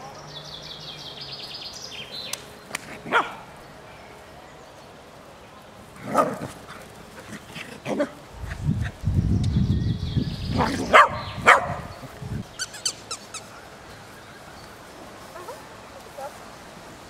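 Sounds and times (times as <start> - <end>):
dog sharp barks: 3.0 - 3.4, 10.6 - 12.0
dogs low rumbling growl: 10.4 - 12.1.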